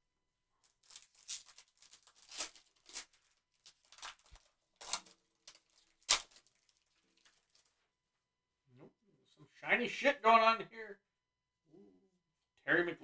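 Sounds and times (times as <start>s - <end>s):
cards rustling: 0.6s - 7.8s
plastic wrapper crinkling and tearing: 0.6s - 7.8s.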